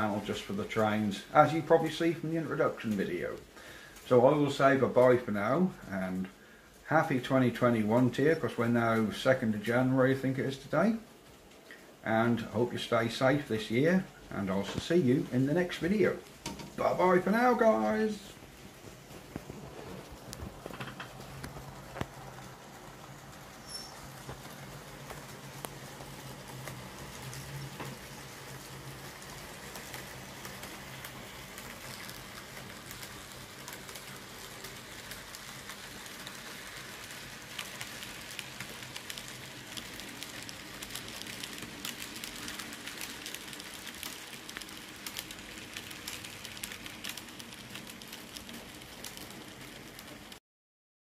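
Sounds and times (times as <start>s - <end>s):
model train wheels clicking on rails: 13.1s - 50.4s.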